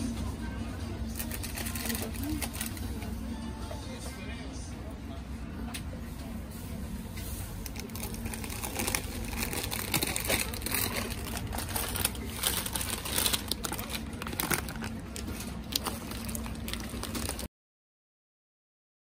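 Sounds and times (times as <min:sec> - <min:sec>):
steady low hum: 0:00.0 - 0:17.5
crinkling handling noise: 0:01.1 - 0:03.1, 0:06.7 - 0:17.5.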